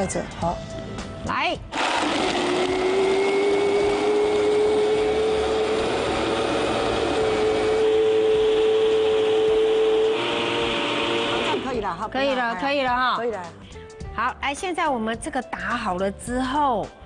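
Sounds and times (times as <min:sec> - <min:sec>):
blender motor whine: 0:01.7 - 0:11.8.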